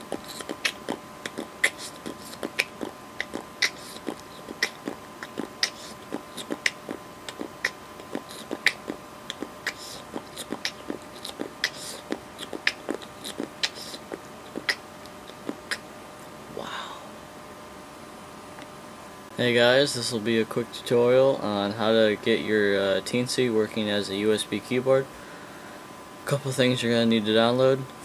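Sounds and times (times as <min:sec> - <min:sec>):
mouth clicks and smacks: 0:00.0 - 0:15.8
faint electrical hum: 0:00.0 - 0:28.0.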